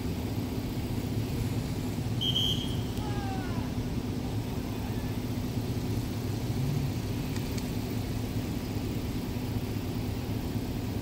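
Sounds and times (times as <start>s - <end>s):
road traffic rumble: 0.0s - 11.0s
faint ticks: 7.2s - 7.8s.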